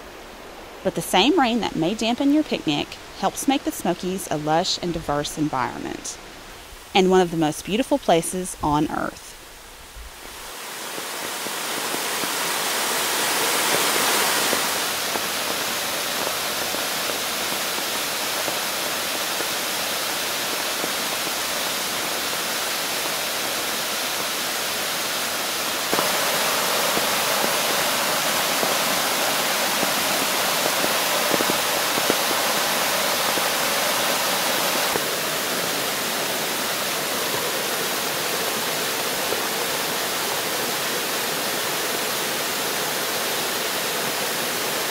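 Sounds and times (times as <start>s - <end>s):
waterfall rushing: 10.2s - 44.9s.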